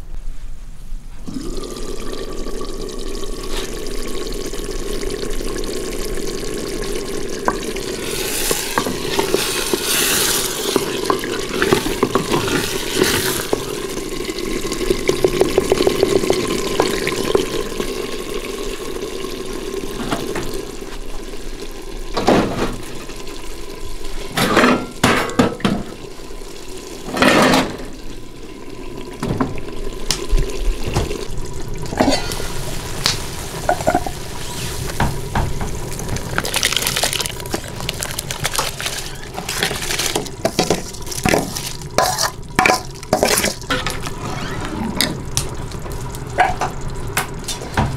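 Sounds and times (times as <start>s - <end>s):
stone pot knocking and scraping: 8.5s - 13.7s, 39.4s - 44.2s.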